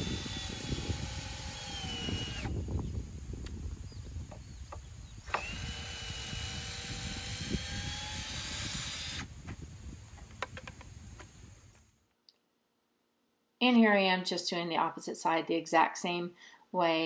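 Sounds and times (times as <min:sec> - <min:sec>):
cordless drill driving screws: 0:00.0 - 0:02.6, 0:05.2 - 0:09.3
clicks and knocks of handling: 0:10.3 - 0:10.9.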